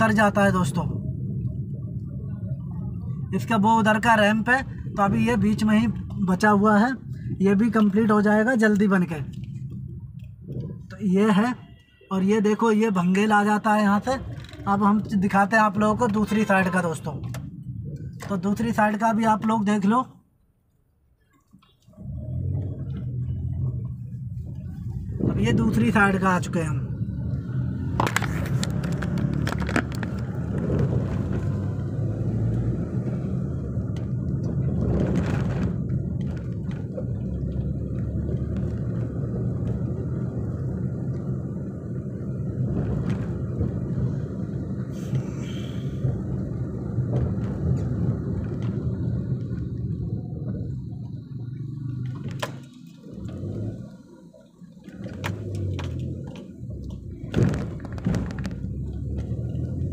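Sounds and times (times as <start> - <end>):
car engine and tyre rumble: 0.0 - 59.9
short knocks and thumps: 55.1 - 59.6.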